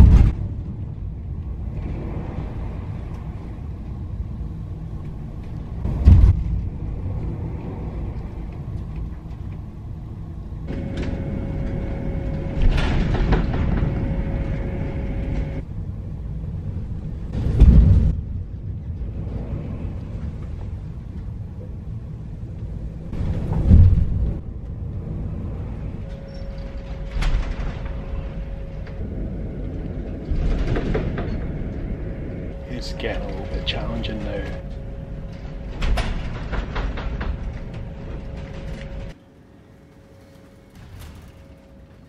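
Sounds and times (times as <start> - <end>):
hull slamming into waves: 0.0 - 0.6, 5.9 - 6.6, 17.4 - 18.2
ship engines low rumble: 0.0 - 42.0
steady hum with held tone: 8.9 - 17.3, 21.5 - 42.0.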